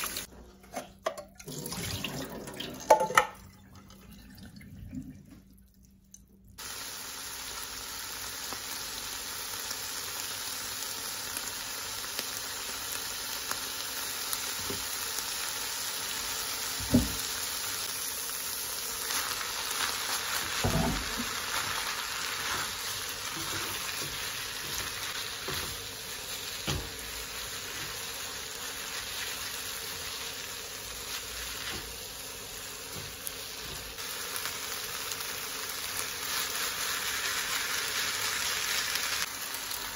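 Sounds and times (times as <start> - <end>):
noodles sizzling in frying pan: 0.0 - 0.3, 6.6 - 39.9.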